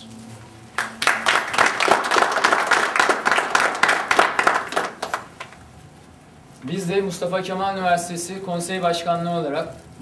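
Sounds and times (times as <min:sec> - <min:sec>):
people clapping: 0:00.7 - 0:05.7.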